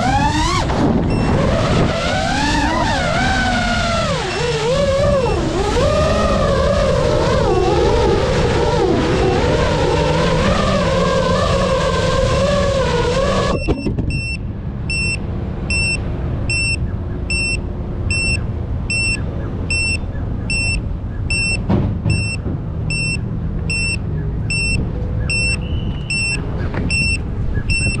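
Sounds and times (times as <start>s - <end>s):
wind rumble on microphone: 0.0s - 28.0s
buzzer beeping: 1.1s - 1.5s, 13.5s - 28.0s.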